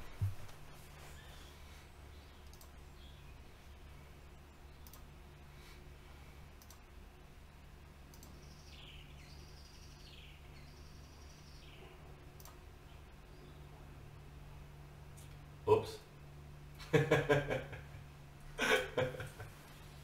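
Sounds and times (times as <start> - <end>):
steady low hum: 0.0 - 20.0
bird chirping: 2.1 - 5.0, 8.2 - 12.0, 12.8 - 13.8
faint clicks: 2.4 - 2.8, 4.8 - 5.1, 6.6 - 6.9, 8.1 - 8.4, 12.4 - 12.6.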